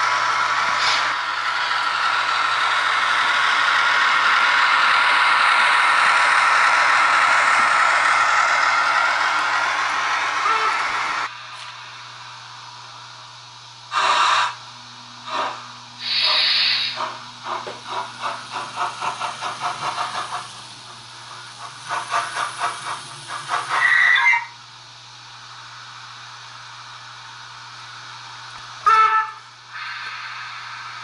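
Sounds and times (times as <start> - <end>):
rhythmic steam chuffing: 0.0 - 31.0
steam hiss from loudspeaker: 13.9 - 14.6, 15.3 - 17.2, 28.8 - 31.0.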